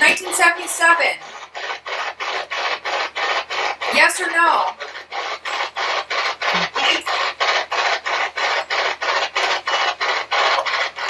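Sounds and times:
radio static bursts: 0:00.0 - 0:11.0
snatch of radio station audio: 0:00.0 - 0:11.0.

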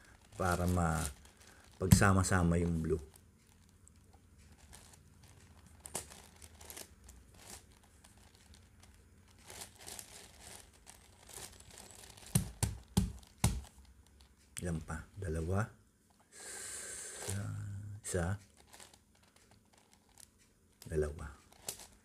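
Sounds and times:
puzzle cube clicking and rustling: 0:00.0 - 0:14.2, 0:18.4 - 0:22.0.

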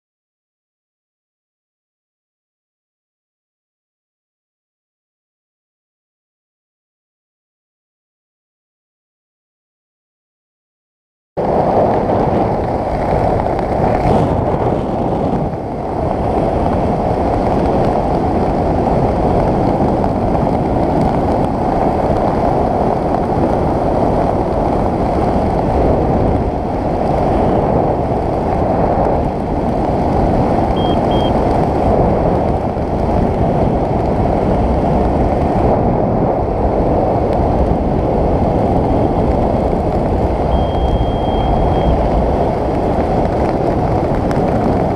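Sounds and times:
wind buffeting microphone: 0:11.4 - 0:44.9.

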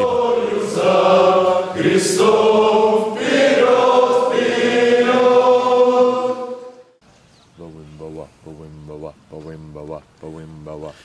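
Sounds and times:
choir singing held chords: 0:00.0 - 0:07.0.

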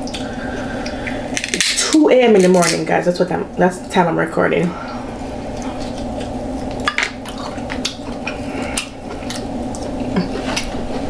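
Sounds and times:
steady low hum: 0:00.0 - 0:11.0
chewing: 0:05.5 - 0:11.0.

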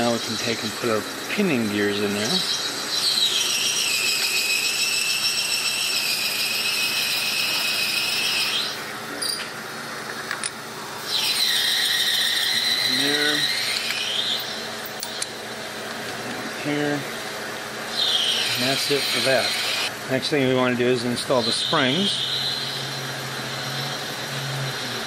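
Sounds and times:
high-pitched mechanical squeals: 0:01.8 - 0:09.4, 0:11.1 - 0:15.3, 0:17.9 - 0:19.9, 0:21.3 - 0:25.0.

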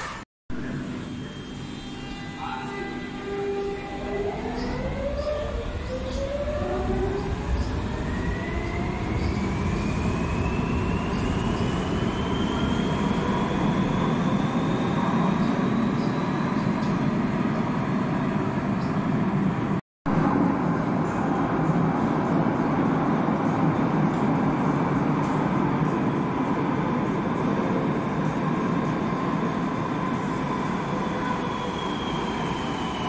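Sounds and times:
wheels rumbling on rail: 0:03.2 - 0:33.0.

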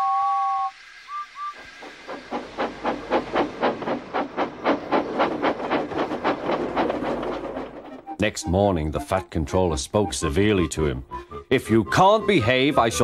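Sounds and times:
steam locomotive whistle: 0:00.0 - 0:01.7
steam engine chuffing: 0:00.1 - 0:08.6.

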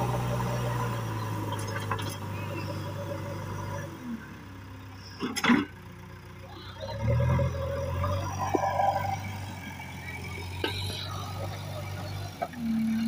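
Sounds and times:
diesel engine running: 0:00.0 - 0:13.0.

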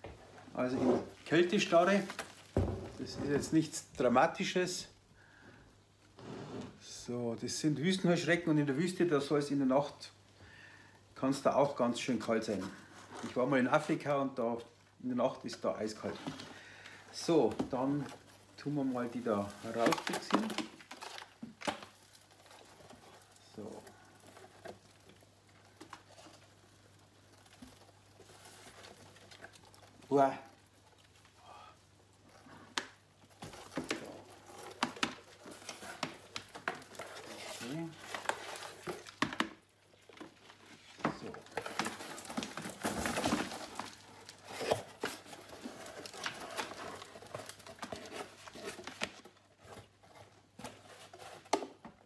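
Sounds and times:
paper egg trays rustling and scraping: 0:15.4 - 0:31.3, 0:33.2 - 0:52.0.

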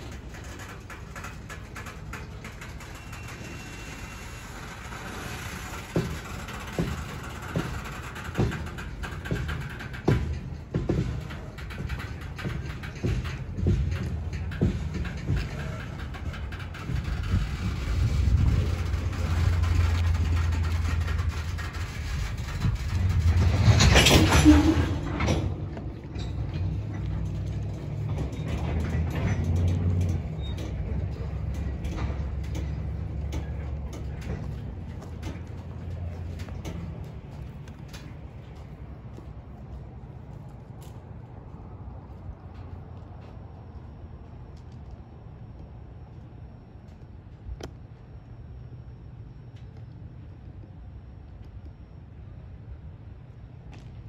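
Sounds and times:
metallic grinding: 0:00.0 - 0:38.8
metallic clanking and rattling: 0:00.0 - 0:41.2
train wheels rumbling on rails: 0:00.0 - 0:54.0.

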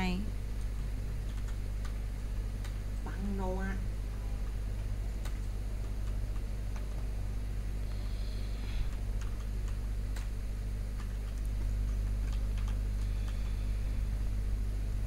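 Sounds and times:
low electrical hum: 0:00.0 - 0:15.0
small clicks: 0:08.8 - 0:13.6.

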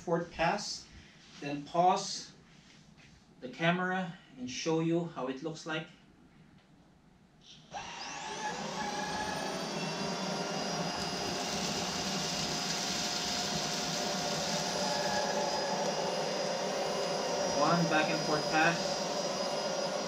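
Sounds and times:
vacuum cleaner motor whine: 0:07.6 - 0:20.0
roller brush on rug: 0:08.5 - 0:20.0.

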